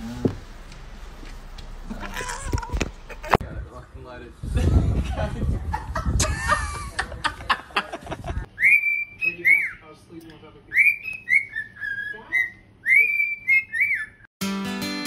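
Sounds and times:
cockatiel whistling: 8.6 - 9.8, 10.7 - 14.3.

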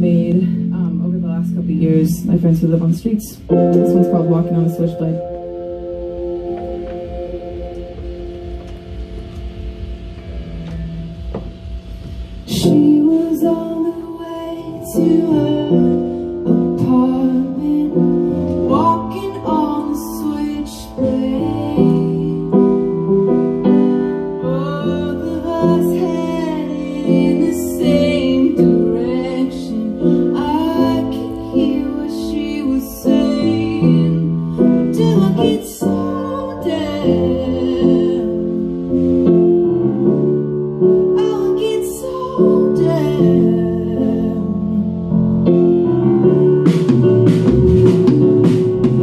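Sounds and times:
woman singing: 0.0 - 5.3, 12.5 - 22.9, 23.7 - 38.8, 41.0 - 45.1
electric keyboard chords: 0.0 - 49.0.

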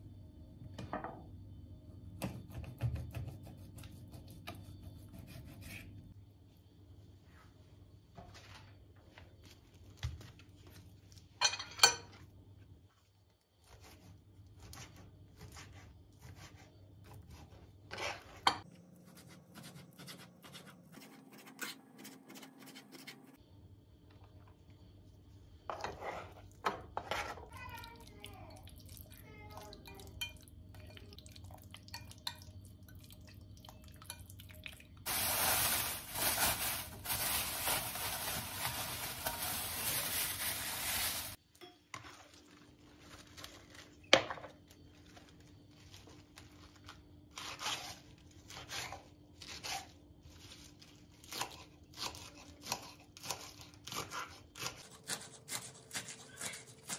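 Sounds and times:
plastic wrap crinkling: 35.1 - 41.4, 42.2 - 44.0.

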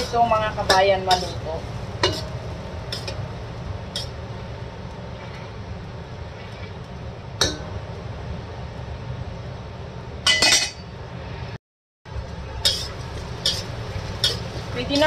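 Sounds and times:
steady low rumble: 0.0 - 15.0
metal spatula clinking on wok: 12.6 - 15.0.

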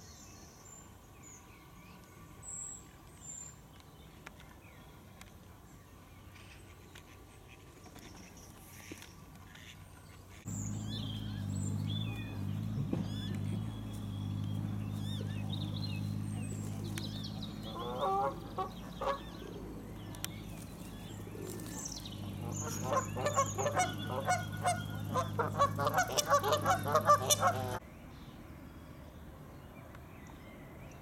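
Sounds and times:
geese honking: 10.5 - 27.8
steady low hum: 10.5 - 27.8.

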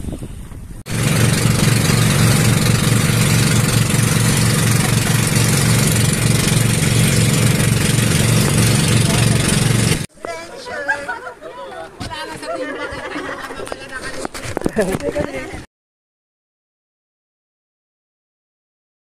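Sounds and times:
wind and water noise: 0.0 - 10.1
boat engine throbbing: 0.9 - 10.1.

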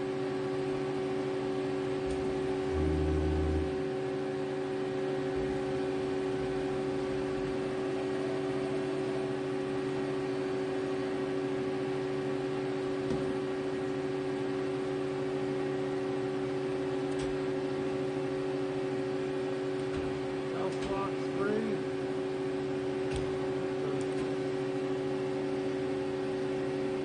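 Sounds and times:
lathe humming: 2.6 - 4.0.

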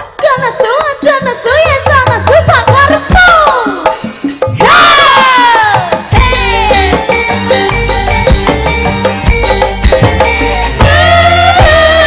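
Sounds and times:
hand drum and percussion: 0.0 - 12.0
woman singing ornamented melody: 6.2 - 7.3.

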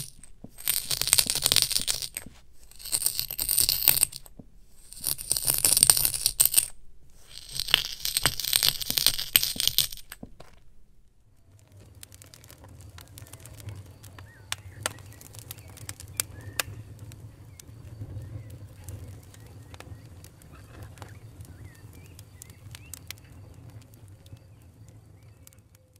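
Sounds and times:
steady low hum: 0.0 - 25.9
kinetic sand crunching: 7.1 - 25.9.

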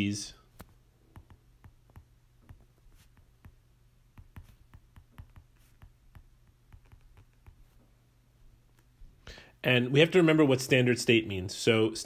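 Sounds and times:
low steady hum: 0.0 - 12.0
stylus tapping on tablet screen: 0.5 - 7.9.

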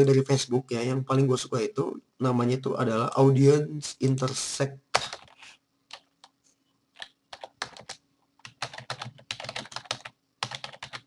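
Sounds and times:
computer keyboard typing: 5.0 - 6.4, 7.0 - 11.0.

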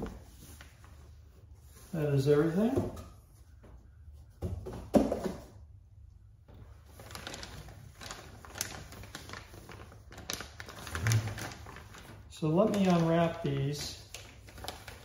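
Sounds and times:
plastic packaging crinkling: 6.8 - 15.0.

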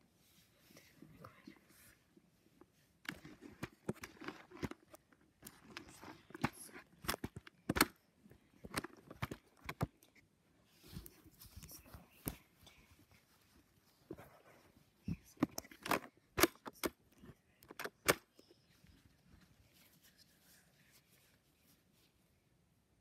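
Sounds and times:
phone handling clicks and knocks: 5.6 - 8.0.

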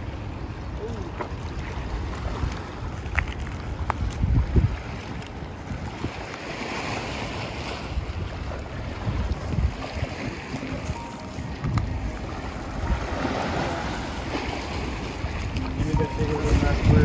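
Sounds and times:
wind buffeting microphone: 0.0 - 17.0
river rushing: 8.6 - 17.0.

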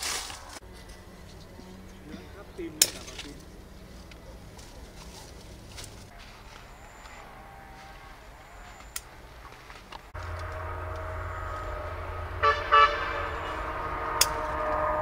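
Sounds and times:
vehicle engine humming: 0.0 - 15.0
car horn toots: 10.2 - 15.0.

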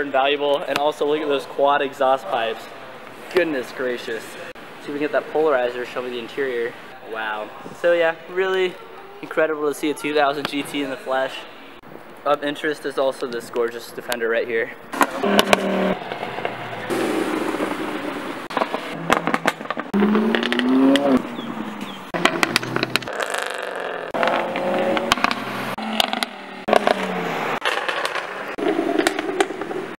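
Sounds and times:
exhaust crackling and popping: 14.8 - 30.0
car engines revving: 14.9 - 30.0.

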